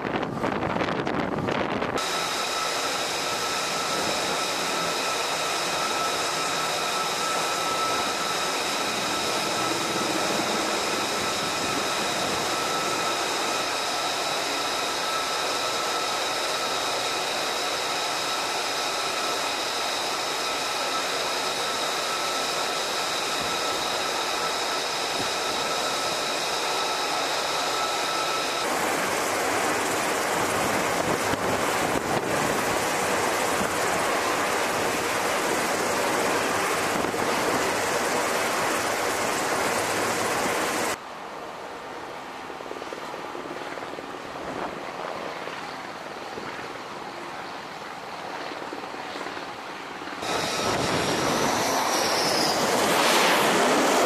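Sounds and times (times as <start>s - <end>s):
constant rushing noise: 0.0s - 54.0s
high-pitched machine whine: 1.8s - 41.0s, 50.2s - 54.0s.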